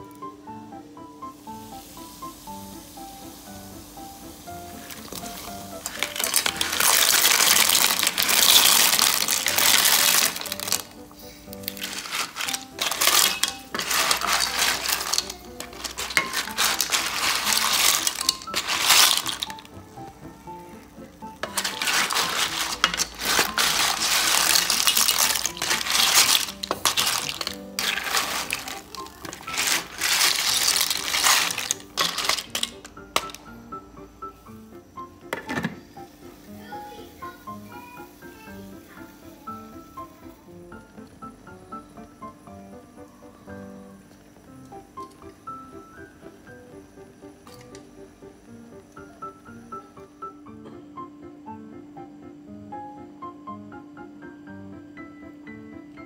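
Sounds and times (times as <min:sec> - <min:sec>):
soft background music: 0:00.0 - 0:56.0
shells clattering into water: 0:04.9 - 0:10.9, 0:11.6 - 0:19.7, 0:21.4 - 0:33.4.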